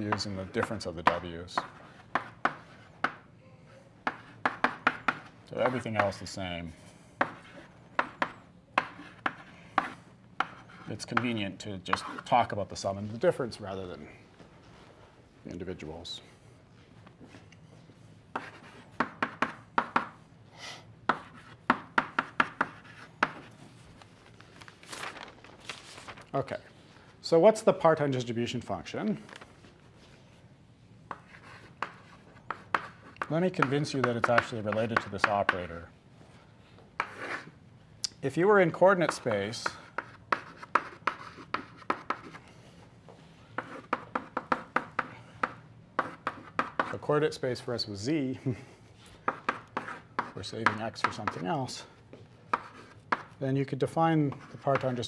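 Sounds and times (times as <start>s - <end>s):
chalk tapping and scraping on blackboard: 0.0s - 3.2s, 4.0s - 6.2s, 7.2s - 12.5s, 18.3s - 20.2s, 21.0s - 23.6s, 31.1s - 35.7s, 37.0s - 37.5s, 39.0s - 42.4s, 43.1s - 47.1s, 49.2s - 53.4s, 54.2s - 55.0s.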